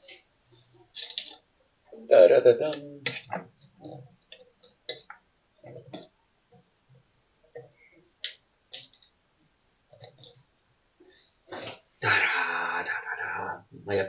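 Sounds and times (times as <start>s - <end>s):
small objects clicking and knocking: 0.8s - 1.5s, 2.6s - 9.2s, 9.9s - 10.7s.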